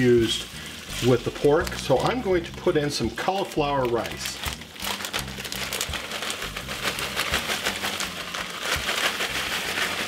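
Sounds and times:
plastic bag rustling: 0.0 - 10.0
small pieces pouring into a skillet: 0.0 - 10.0.

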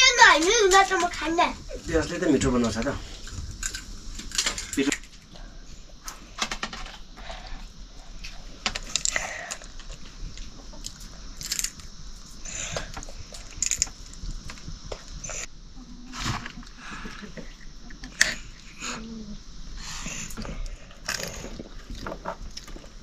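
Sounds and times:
children chewing: 7.2 - 11.8, 16.3 - 23.0.

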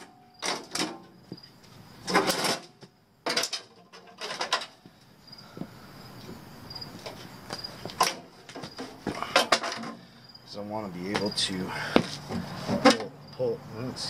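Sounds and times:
crickets chirping: 0.0 - 14.0
sheet metal clanking and rattling: 2.0 - 4.8.

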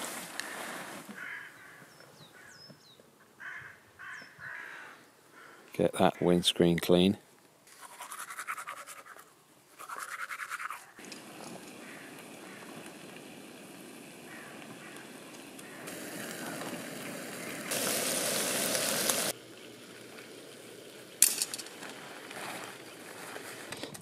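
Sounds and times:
steady hiss: 0.0 - 1.3, 11.0 - 24.0
toothbrush scrubbing teeth: 7.8 - 9.2, 9.8 - 11.0.

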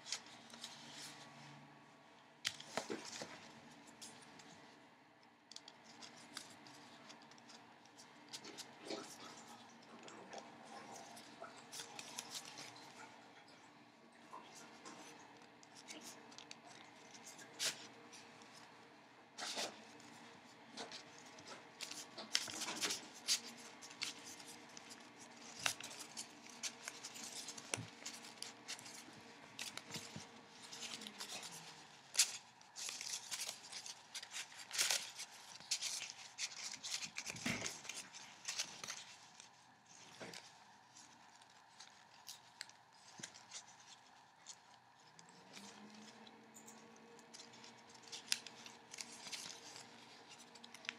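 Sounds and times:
paper rustling and crackling: 0.0 - 1.8, 2.4 - 4.8, 5.5 - 13.2, 14.4 - 50.9.

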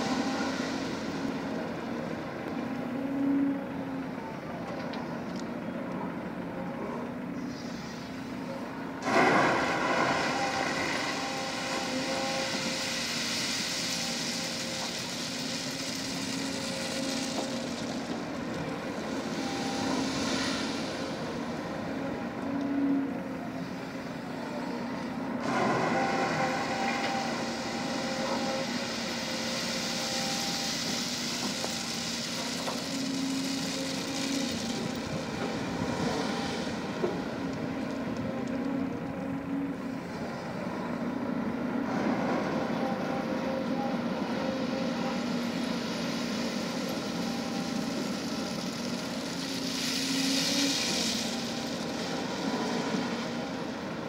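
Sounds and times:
excavator diesel engine working: 0.0 - 54.0.

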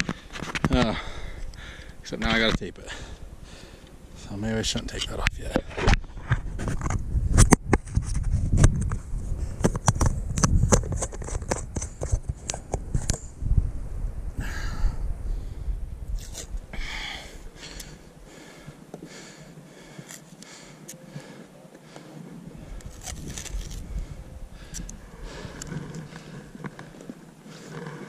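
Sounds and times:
clothing and gear rustling: 18.4 - 28.0.

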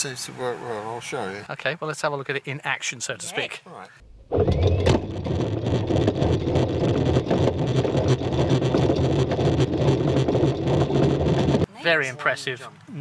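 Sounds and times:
windlass motor humming: 4.0 - 11.7.

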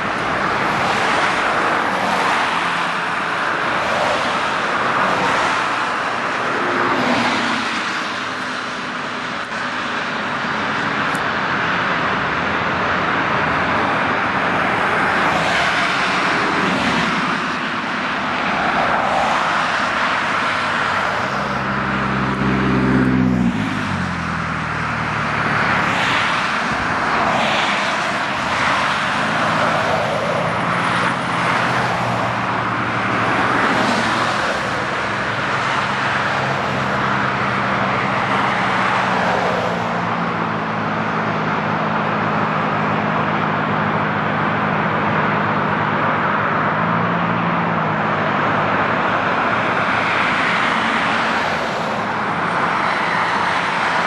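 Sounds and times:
traffic tyre and road noise: 0.0 - 54.0
vehicle passing by: 20.5 - 26.5.

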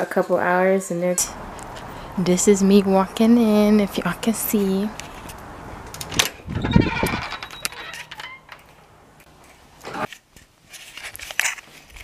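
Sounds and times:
footsteps: 1.3 - 2.6
glass door rattling open: 5.8 - 8.8.

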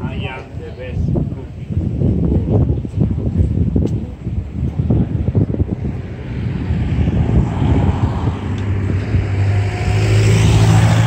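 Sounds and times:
vehicle passing by: 5.0 - 11.0.

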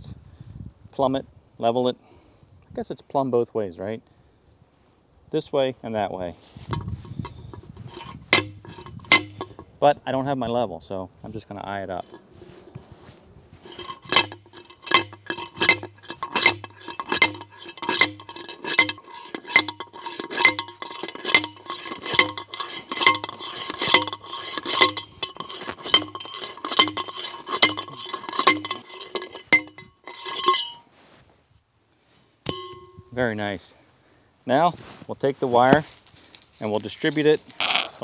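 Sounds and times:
short rattle: 6.6 - 9.8, 12.0 - 12.9, 13.6 - 30.9
ringing metallic clangs: 6.7 - 9.7, 13.7 - 30.9, 32.5 - 33.2.

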